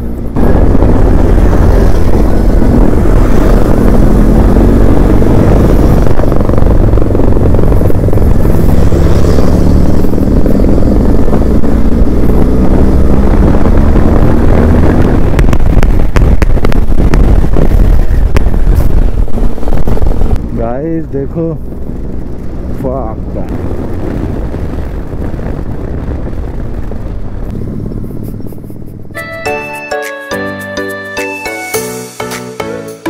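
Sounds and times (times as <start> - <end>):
wind rumble on microphone: 0.0 - 29.2
motorcycle engine running: 0.0 - 29.4
sharp clicks and buffets: 13.6 - 30.7.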